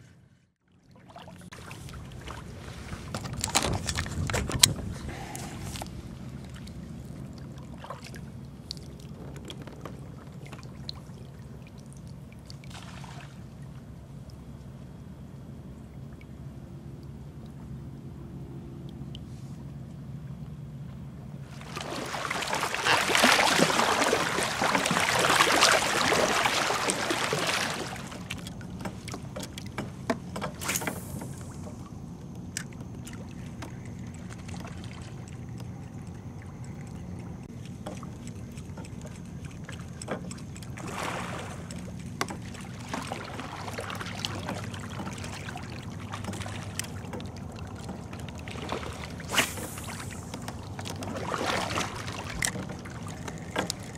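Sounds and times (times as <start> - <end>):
low hum: 0.0 - 53.9
water splashing around kayak: 0.7 - 19.8, 21.3 - 53.9
small knocks: 28.3 - 30.6.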